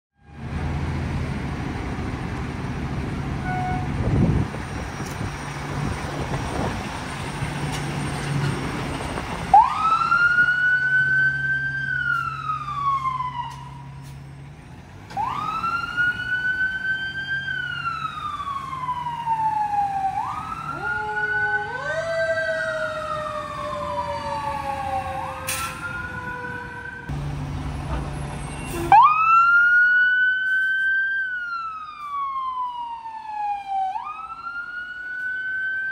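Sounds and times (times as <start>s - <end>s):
electronic wail siren: 9.5s - 14.0s, 15.1s - 27.1s, 28.7s - 35.9s.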